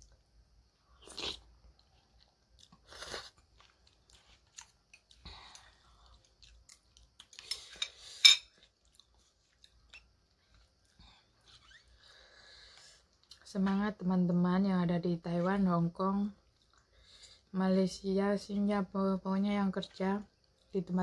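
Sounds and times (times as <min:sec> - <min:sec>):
chewing: 0:01.0 - 0:11.6, 0:16.4 - 0:17.2.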